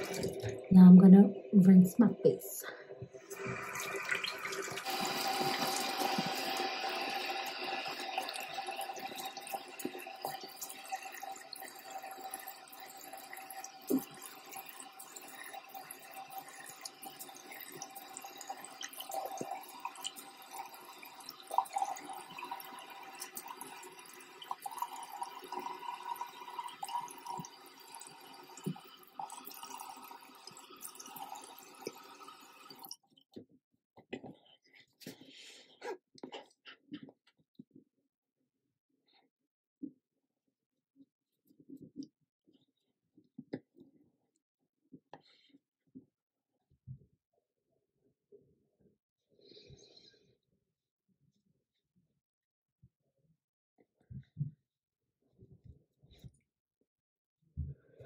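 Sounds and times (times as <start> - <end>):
water splashes and drips: 0.0 - 0.7, 3.0 - 33.0
faucet running into sink: 0.0 - 2.4, 3.1 - 33.0.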